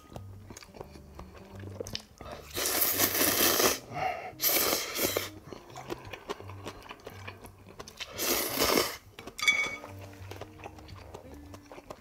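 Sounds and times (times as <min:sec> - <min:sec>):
noodles slurped: 0:01.9 - 0:09.1
soft chewing clicks: 0:05.4 - 0:08.1, 0:10.0 - 0:12.0.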